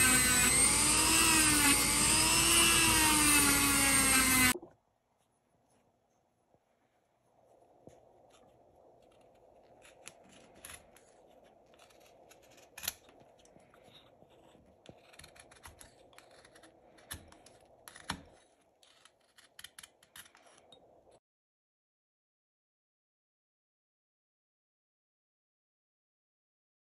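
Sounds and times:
knife whittling wood: 0:00.0 - 0:04.6.

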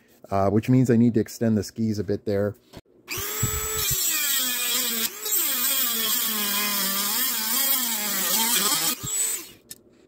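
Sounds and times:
rotary tool cutting metal: 0:03.1 - 0:09.7.

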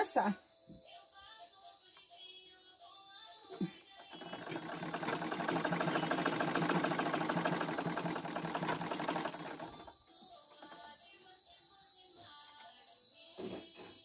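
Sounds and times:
sewing machine stitching: 0:03.5 - 0:10.9.

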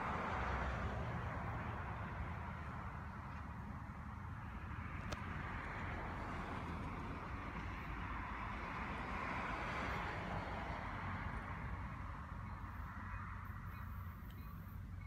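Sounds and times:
faint ringing tones: 0:12.3 - 0:15.0.

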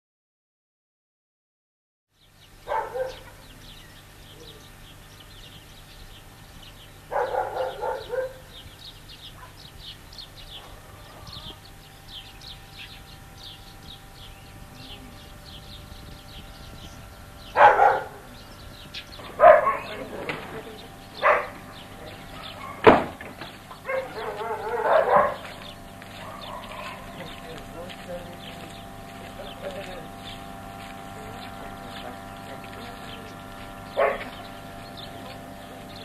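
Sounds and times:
dog barking: 0:02.6 - 0:03.4, 0:07.1 - 0:08.6, 0:10.6 - 0:11.2, 0:17.6 - 0:18.2, 0:19.2 - 0:20.3, 0:21.2 - 0:23.2, 0:23.8 - 0:27.4, 0:34.0 - 0:34.4.

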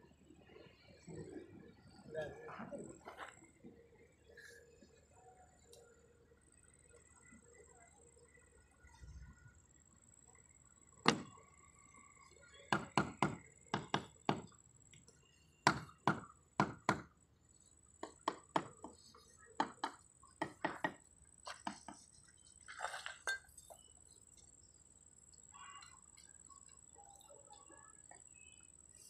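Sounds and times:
trowel tapping roof tiles: 0:18.0 - 0:22.1.

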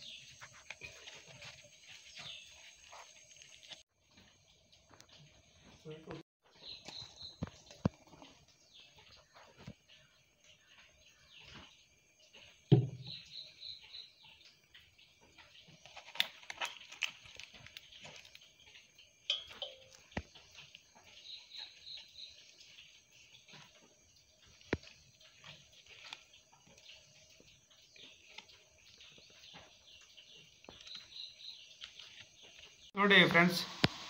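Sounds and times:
leaves rustling and crinkling: 0:00.0 - 0:03.8, 0:15.3 - 0:32.9
thump: 0:12.7 - 0:13.1.

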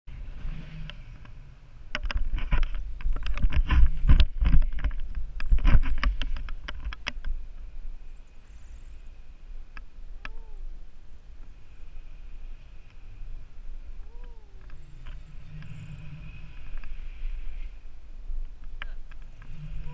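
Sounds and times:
crackles and clicks: 0:00.1 - 0:19.9
wind buffeting microphone: 0:12.4 - 0:19.9.

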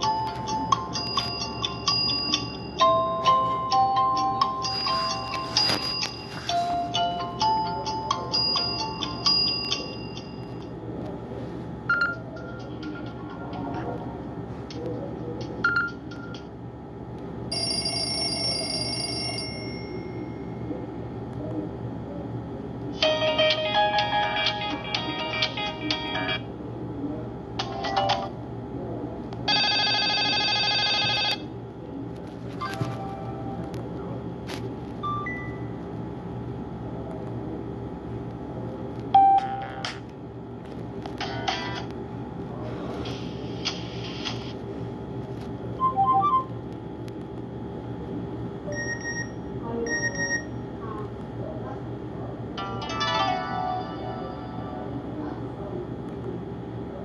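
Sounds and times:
phone ringtone note: 0:00.0 - 0:10.6, 0:17.5 - 0:20.4, 0:29.5 - 0:31.4.

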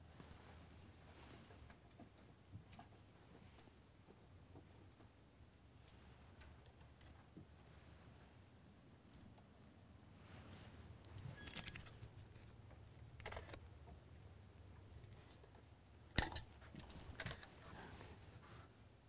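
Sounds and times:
hard objects clinking: 0:16.2 - 0:17.2.

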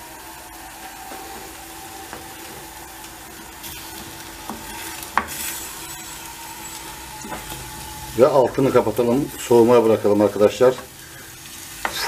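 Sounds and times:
meat sizzling in a frying pan: 0:00.0 - 0:12.0
wooden spoon scraping a pan: 0:03.6 - 0:09.8.

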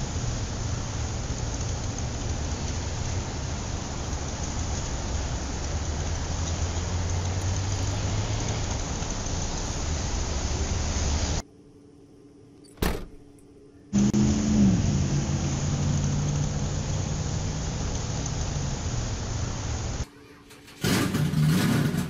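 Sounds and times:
vehicle engine running: 0:14.0 - 0:20.0.

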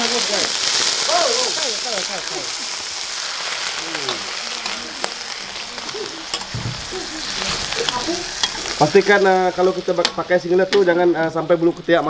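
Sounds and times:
chicken sizzling in hot oil: 0:00.0 - 0:12.0
metal spatula scraping pan: 0:06.3 - 0:09.2.

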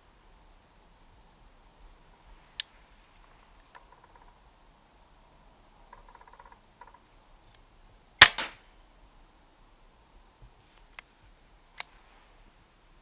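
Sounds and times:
air rifle shot crack: 0:08.2 - 0:08.6.

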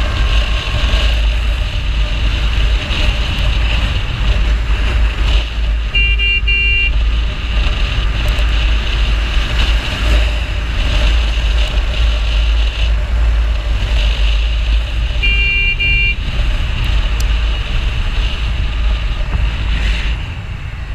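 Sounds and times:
motorcycle cruising: 0:00.0 - 0:20.9
wind buffeting microphone: 0:00.0 - 0:20.9
horn double toot: 0:05.9 - 0:07.0, 0:15.2 - 0:16.2.

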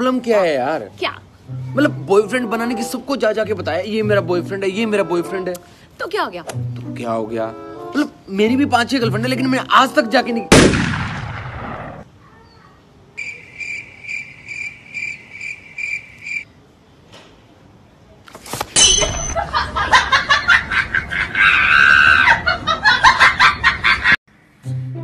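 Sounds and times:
loud bang: 0:10.5 - 0:12.0
cricket chirps: 0:13.2 - 0:16.6.

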